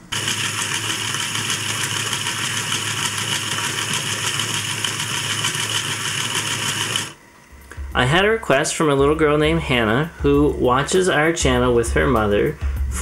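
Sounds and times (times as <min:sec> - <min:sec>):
electric motor whirring: 0:00.0 - 0:07.2.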